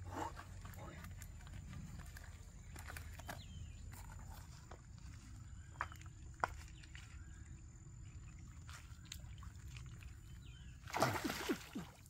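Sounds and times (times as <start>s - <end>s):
footsteps on river stones: 0.0s - 7.6s
stick splashing in stream water: 10.8s - 12.0s.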